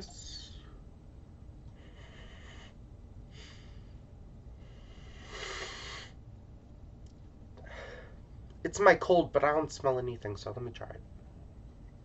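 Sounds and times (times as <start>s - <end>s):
man sniffing through nose: 5.0s - 6.2s.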